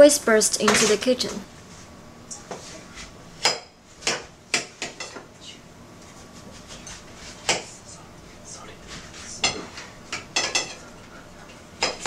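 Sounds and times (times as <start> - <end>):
utensils and dishes clinking: 9.4 - 10.9.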